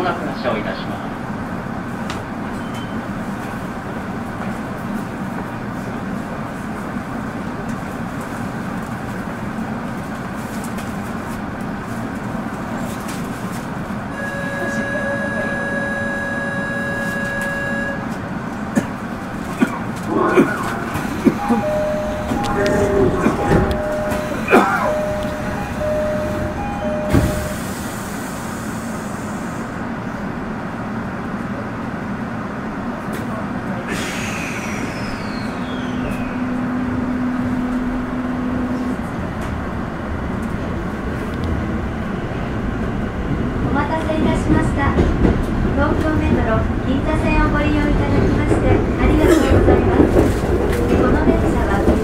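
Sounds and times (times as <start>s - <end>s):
subway car hum: 0.0s - 52.0s
short steady tones: 14.2s - 18.0s, 21.4s - 27.7s
brief squeals: 34.0s - 36.8s.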